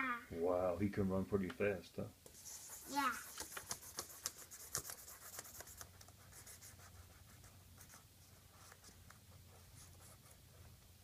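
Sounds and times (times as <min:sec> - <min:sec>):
marker scratching on paper: 0:02.3 - 0:10.7.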